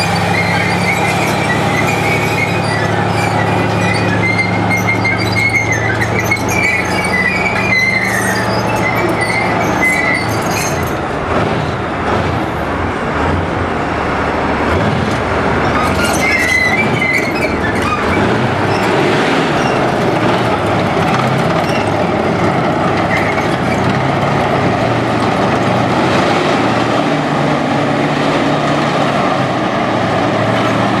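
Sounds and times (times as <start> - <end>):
short high squeals: 0.0 - 11.0, 15.8 - 20.4
steel tracks on paving: 0.0 - 31.0
tank diesel engine running: 0.0 - 31.0.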